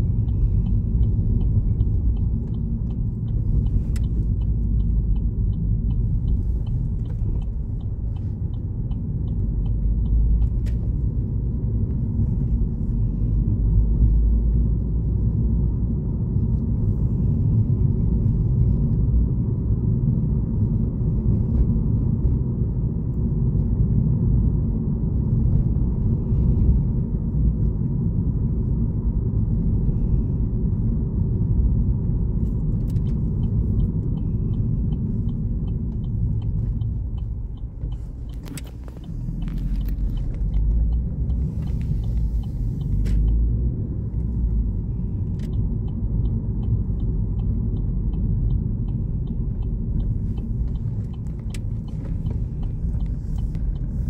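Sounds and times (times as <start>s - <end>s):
turn indicator ticking: 0.0s - 14.7s, 32.2s - 54.0s
car engine and tyres rumbling: 0.0s - 54.0s.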